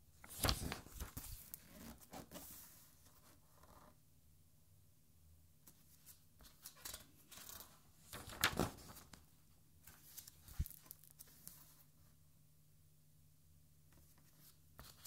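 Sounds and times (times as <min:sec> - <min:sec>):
page turning rustle: 0:00.2 - 0:03.2, 0:05.8 - 0:09.2, 0:09.8 - 0:11.8.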